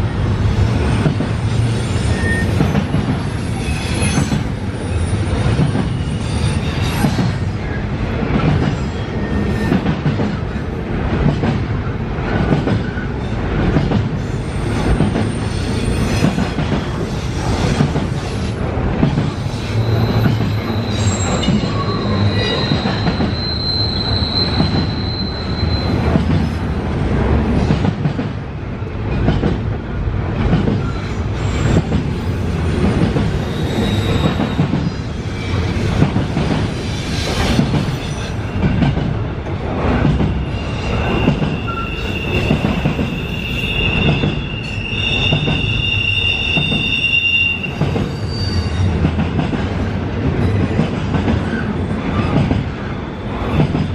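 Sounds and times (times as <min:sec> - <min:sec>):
train rumble: 0:00.0 - 0:53.9
high wheel squeal: 0:01.6 - 0:07.4, 0:19.4 - 0:26.3, 0:33.4 - 0:35.9, 0:40.2 - 0:49.0.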